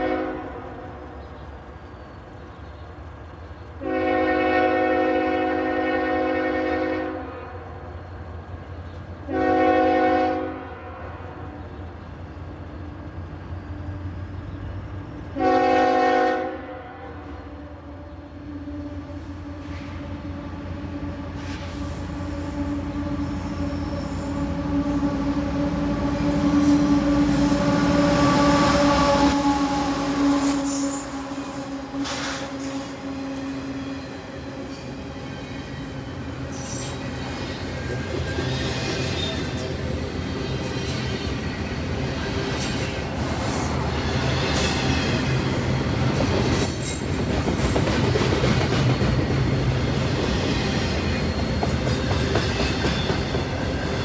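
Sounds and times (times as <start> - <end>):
train horn blasts: 0.0 - 1.1, 3.8 - 7.8, 9.2 - 11.8, 15.3 - 35.0
train passing: 0.0 - 54.0.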